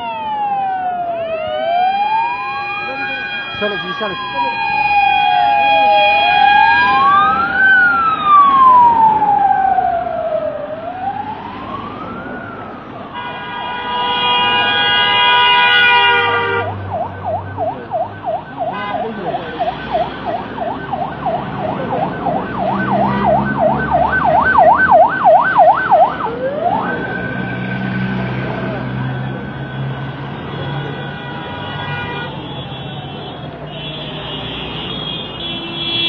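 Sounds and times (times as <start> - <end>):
electronic sirens wailing and yelping: 0.0 - 12.8, 16.7 - 28.1
steady siren horn tone: 0.0 - 36.0
vehicle engines rumbling: 0.0 - 36.0.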